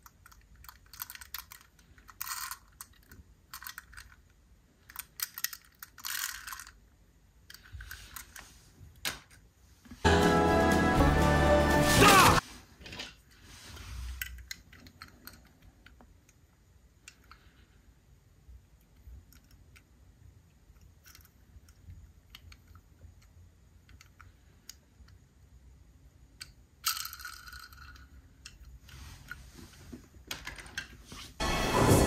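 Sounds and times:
toy car clicks and taps: 0:00.0 - 0:04.2, 0:04.9 - 0:06.8.

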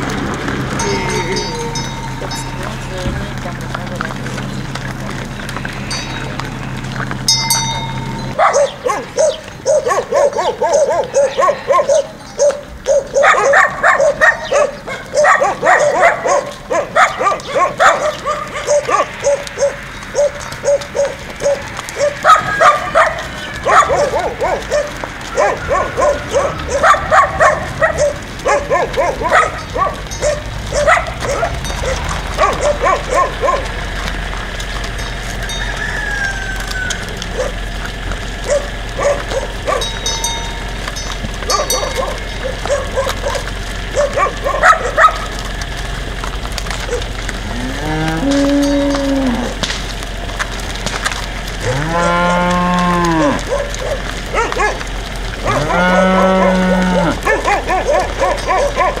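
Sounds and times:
dog barking: 0:08.3 - 0:33.8, 0:37.3 - 0:37.6, 0:38.4 - 0:40.0, 0:41.4 - 0:45.3, 0:46.8 - 0:47.1, 0:53.4 - 0:55.7, 0:56.3 - 0:59.0.

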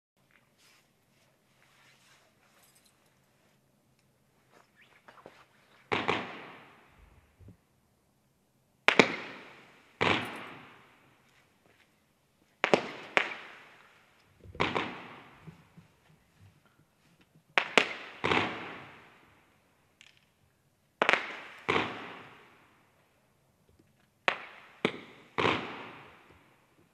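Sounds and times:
fireworks sharp reports: 0:04.8 - 0:07.5, 0:08.9 - 0:10.9, 0:12.6 - 0:15.9, 0:17.6 - 0:19.2, 0:24.3 - 0:26.6.

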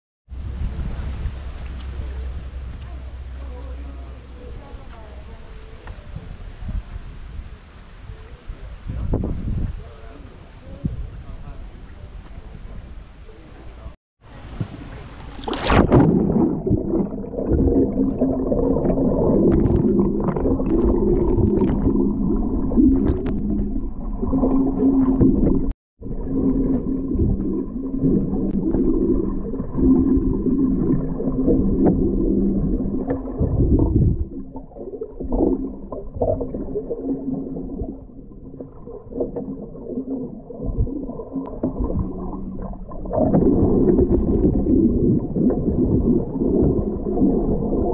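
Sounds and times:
steady low hum: 0:00.3 - 0:08.8
underwater rumbling and gurgling: 0:13.8 - 0:47.9
water splash: 0:14.5 - 0:47.9.

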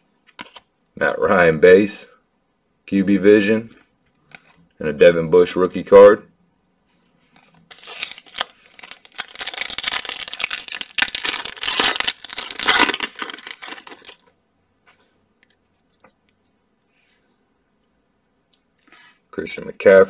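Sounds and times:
foil wrapper tearing and crinkling: 0:07.7 - 0:14.2.

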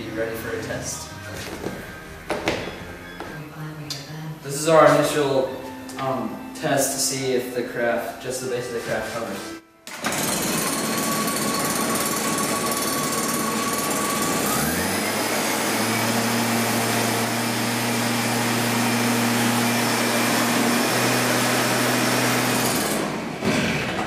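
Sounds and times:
leaf blower running: 0:09.9 - 0:24.0.

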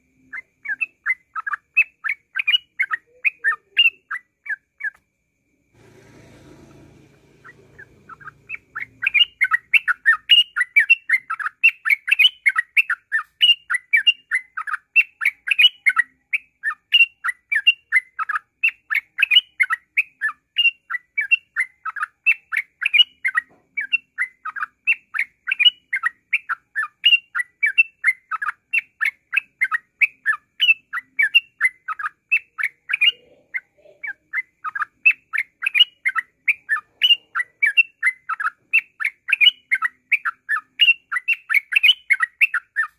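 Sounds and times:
bird singing falling notes: 0:07.2 - 0:10.0.

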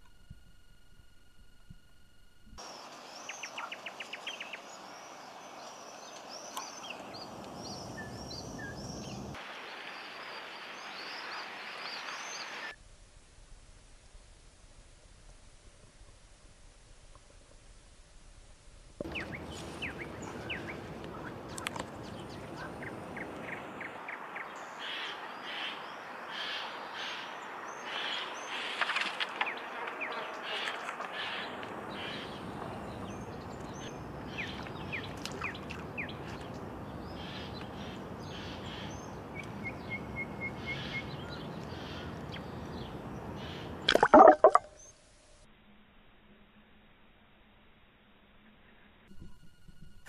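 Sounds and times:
outdoor background noise: 0:00.0 - 0:50.0
birds chirping and calling: 0:19.0 - 0:28.8, 0:30.0 - 0:43.8.

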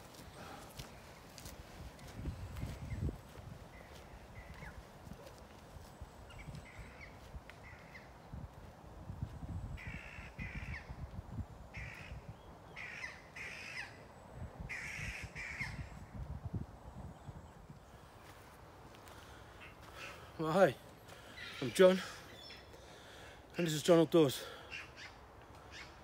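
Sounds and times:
crows cawing: 0:09.8 - 0:11.0, 0:11.7 - 0:12.2, 0:12.8 - 0:14.0, 0:14.7 - 0:15.9, 0:19.0 - 0:20.4, 0:24.5 - 0:26.0.

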